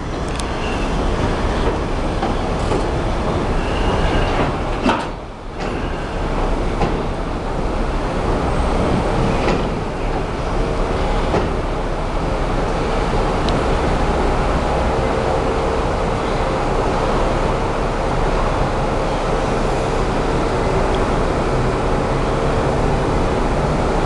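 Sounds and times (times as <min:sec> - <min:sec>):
train wheels rumbling on rail: 0:00.0 - 0:24.0
clacks over rail joints: 0:04.0 - 0:05.9.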